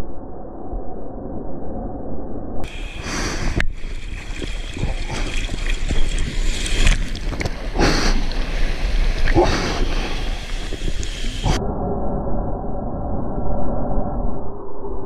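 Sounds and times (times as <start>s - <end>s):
wind rumbling on microphone: 0.0s - 15.0s
sea water sloshing: 2.6s - 11.6s
water splashes: 2.6s - 11.6s.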